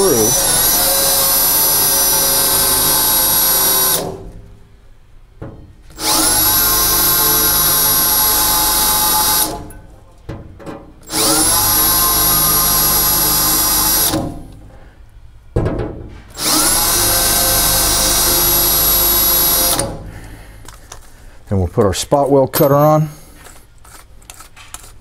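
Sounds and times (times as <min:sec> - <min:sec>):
cordless drill whining: 0:00.0 - 0:04.2, 0:05.9 - 0:09.6, 0:11.0 - 0:14.4, 0:16.4 - 0:20.0.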